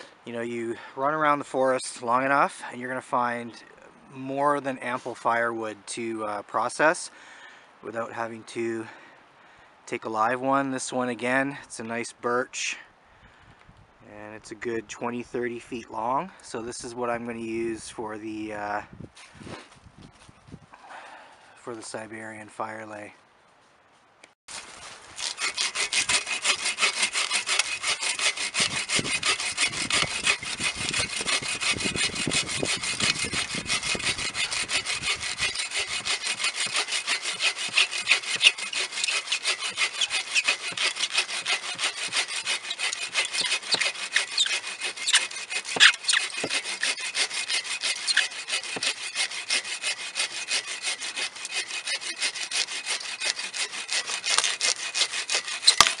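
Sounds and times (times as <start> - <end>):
bow saw cutting through log: 24.5 - 56.0.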